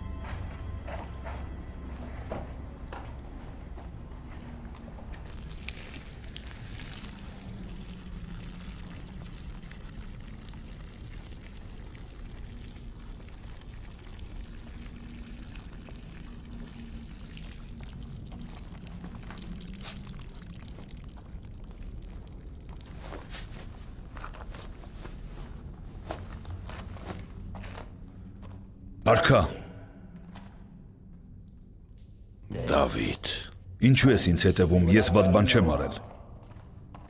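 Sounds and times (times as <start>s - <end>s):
liquid pouring: 5.2s - 24.4s.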